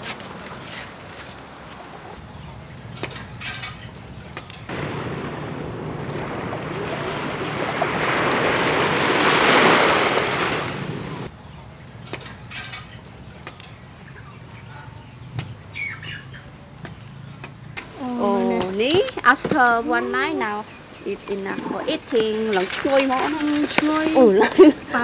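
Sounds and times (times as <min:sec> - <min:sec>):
waves on a shore: 0:04.7 - 0:11.3.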